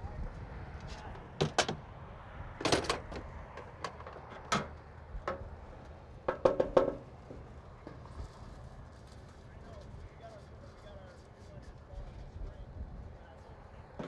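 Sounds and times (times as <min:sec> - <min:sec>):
sheet metal knocks and clanks: 0:06.3 - 0:07.0.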